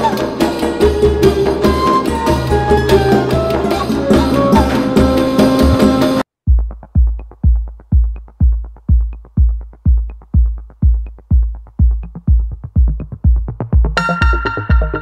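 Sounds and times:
electronic dance music: 0:03.8 - 0:15.0.

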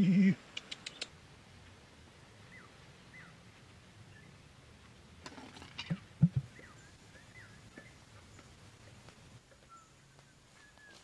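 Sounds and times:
birds chirping faintly: 0:00.0 - 0:05.0, 0:05.6 - 0:11.0
scrabbling in loose dirt: 0:05.2 - 0:11.0.

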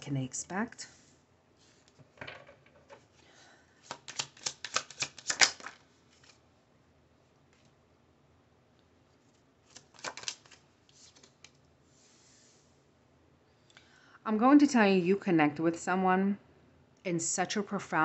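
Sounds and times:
cards being shuffled: 0:03.8 - 0:06.4, 0:09.2 - 0:12.5.

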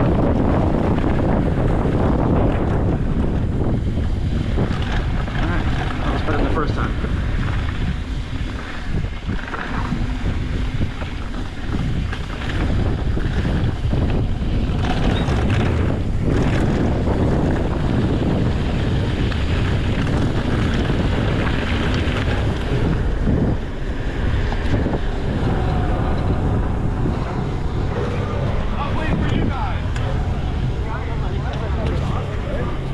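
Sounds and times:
mountain bike rumbling on a trail: 0:00.0 - 0:32.9
wind buffeting the microphone: 0:00.0 - 0:32.9
bike frame knocks and rattles: 0:04.5 - 0:06.3, 0:07.4 - 0:22.9.

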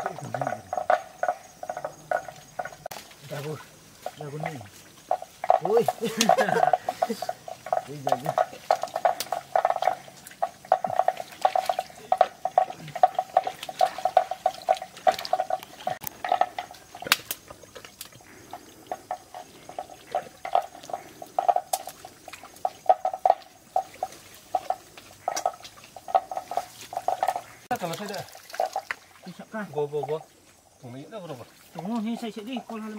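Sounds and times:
clink against metal bucket: 0:02.9 - 0:17.2.

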